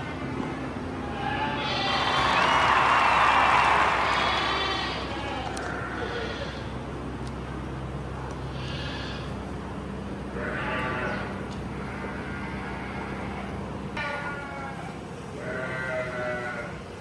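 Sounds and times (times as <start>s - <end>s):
farm animals bleating: 1.0s - 2.2s, 4.0s - 6.7s, 10.3s - 17.0s.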